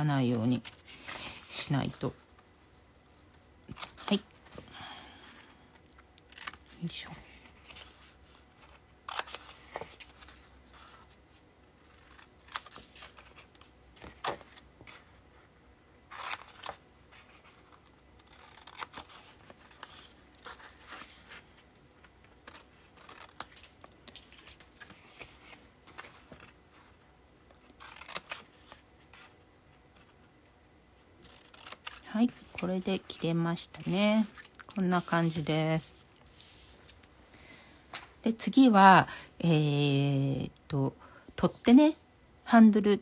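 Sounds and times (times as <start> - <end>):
scissors snipping paper: 18.2 - 20.6, 22.4 - 24.5, 27.6 - 28.8, 31.2 - 33.2.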